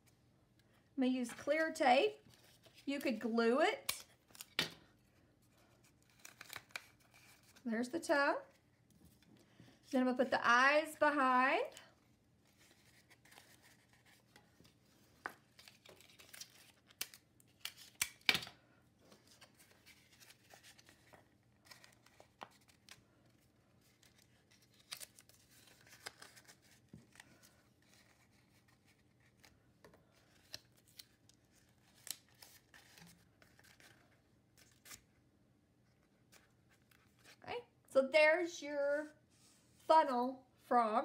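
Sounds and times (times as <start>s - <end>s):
paper rustling: 12.5s - 18.1s, 19.0s - 35.1s.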